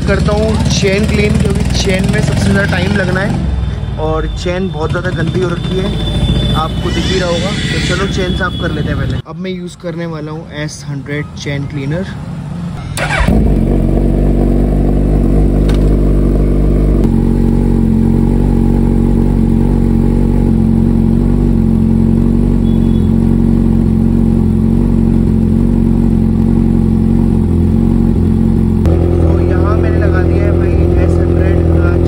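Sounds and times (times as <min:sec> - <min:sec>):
motorcycle engine idling: 0:00.0 - 0:03.7, 0:12.9 - 0:32.0.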